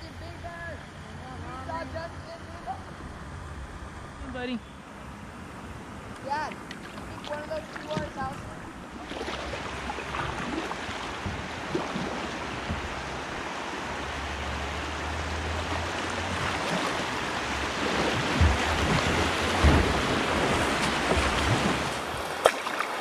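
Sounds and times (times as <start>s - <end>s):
rushing river water: 0.0s - 23.0s
wind rumbling on microphone: 5.2s - 14.6s, 15.5s - 22.4s
dull knocks: 11.1s - 11.6s, 12.6s - 13.1s, 18.1s - 21.9s.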